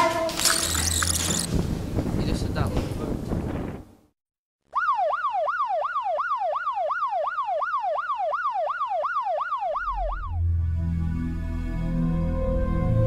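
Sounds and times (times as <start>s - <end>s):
police siren yelping: 4.7s - 10.5s.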